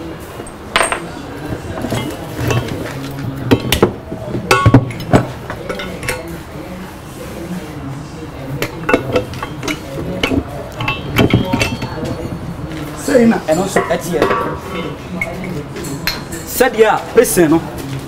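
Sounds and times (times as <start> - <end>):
metal engine parts clinking: 8.6 - 12.5, 13.4 - 16.8.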